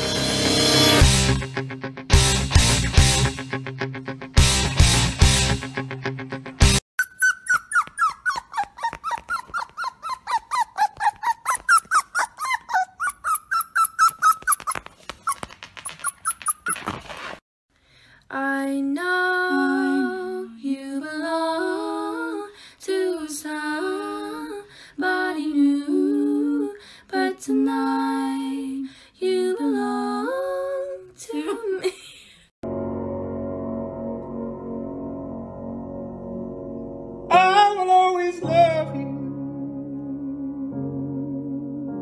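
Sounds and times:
puppy whimpering: 7.0 - 17.3
person humming a tune: 19.4 - 20.6.

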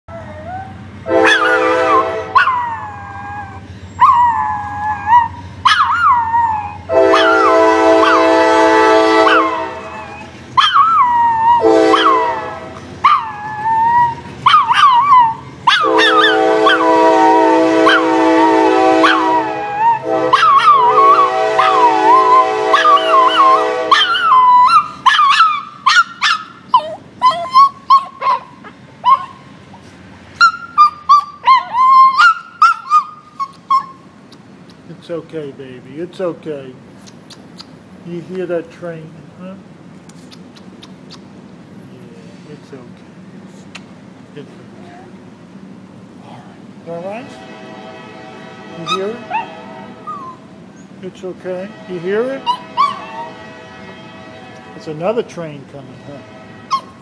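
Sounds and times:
small dog howling: 0.1 - 8.3, 9.2 - 12.4, 13.0 - 16.9, 17.8 - 29.4, 30.4 - 34.0, 48.8 - 50.4, 52.4 - 53.4
train horn chord: 1.0 - 2.4, 6.9 - 10.0, 11.6 - 12.9, 15.8 - 24.3, 46.9 - 57.0.

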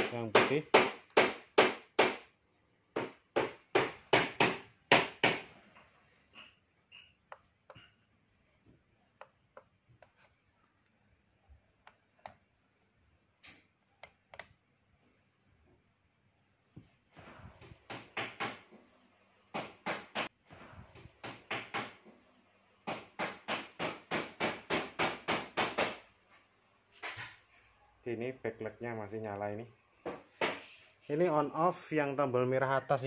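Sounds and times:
loud sharp knocks: 0.0 - 2.3, 3.0 - 5.5, 22.9 - 26.0.

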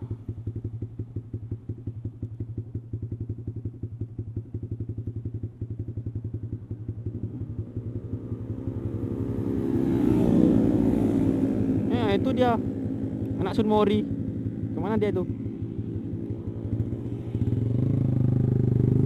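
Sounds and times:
motorcycle engine idling: 0.0 - 19.0
engine revving: 7.2 - 15.3, 16.2 - 19.0.

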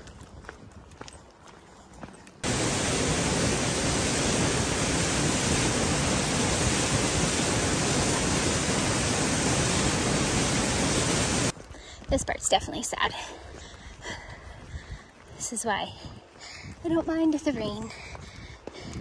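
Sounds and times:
waterfall splashing onto rocks: 2.4 - 11.5.

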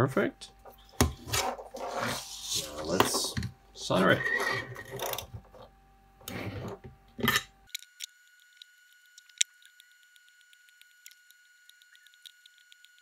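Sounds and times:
soldering ticks and clicks: 7.7 - 13.0.

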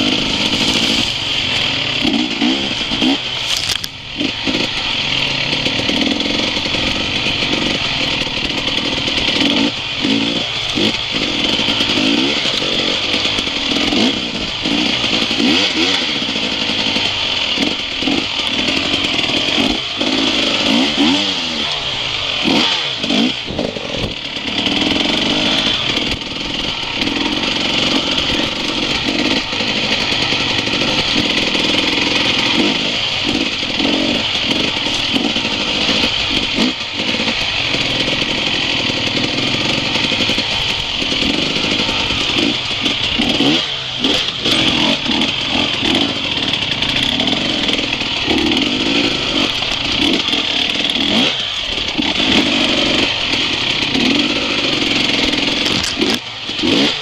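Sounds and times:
dirt bike engine: 0.0 - 57.0
stones knocking against bike: 3.4 - 4.0, 55.6 - 56.2.

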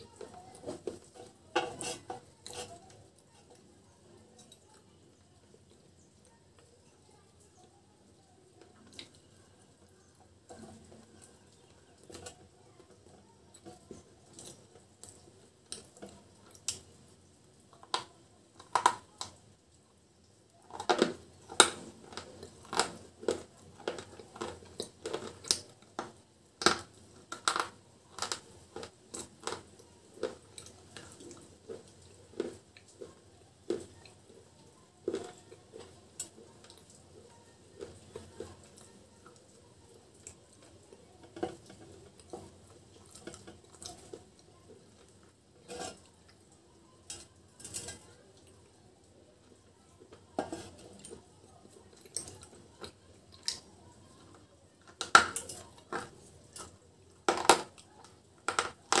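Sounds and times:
chips tapping a clay pot: 0.0 - 3.7, 17.8 - 19.4, 20.6 - 39.3, 54.8 - 59.0
crunching chips: 20.7 - 34.2.

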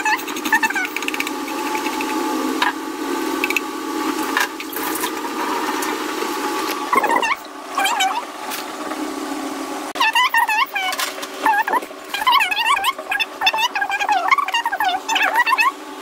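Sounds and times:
steady background hum: 0.0 - 16.0
carrot rasping on metal grater: 0.2 - 2.2.

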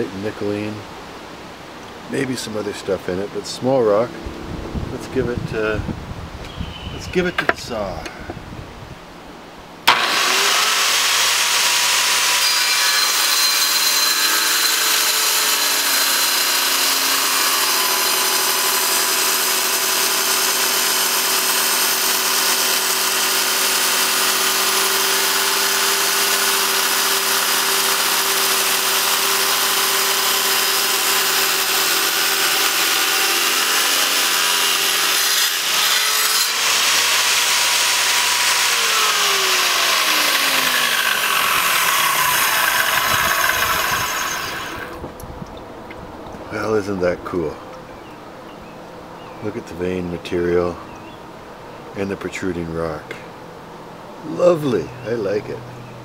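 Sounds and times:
tile saw cutting rock: 9.9 - 45.0.

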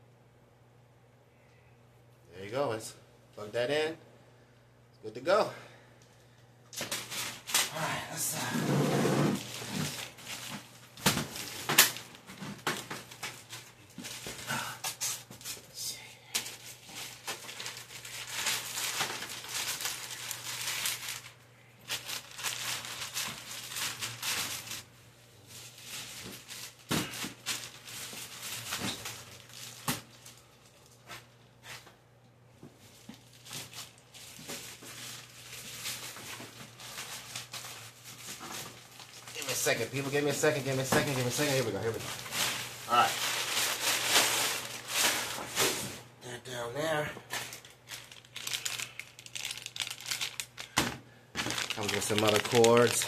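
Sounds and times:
plastic wrapping crinkling: 6.8 - 8.5, 9.2 - 15.7, 16.4 - 31.6, 32.7 - 46.0, 47.3 - 53.0.

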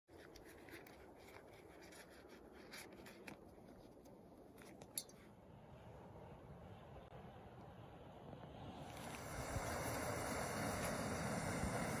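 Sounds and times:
hands handling small gear: 0.1 - 5.1.

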